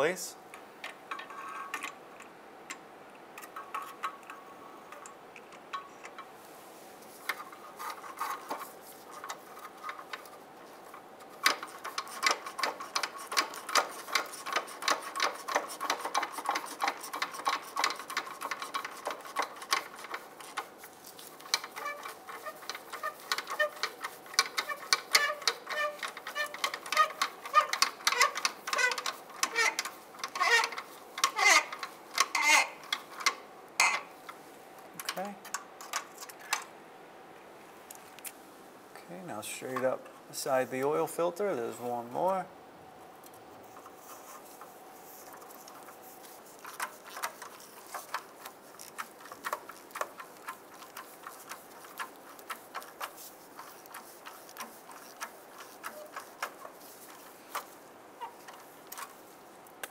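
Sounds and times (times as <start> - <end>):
hand ratchet clicking: 11.4 - 34.0.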